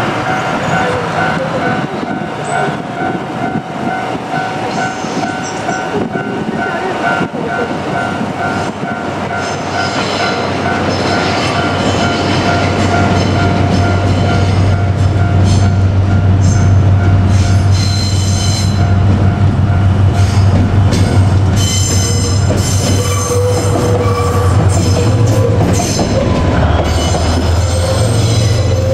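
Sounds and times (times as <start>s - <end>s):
wheels squealing on rails: 0.0s - 18.9s, 20.2s - 28.9s
locomotive engine drone: 18.4s - 28.9s.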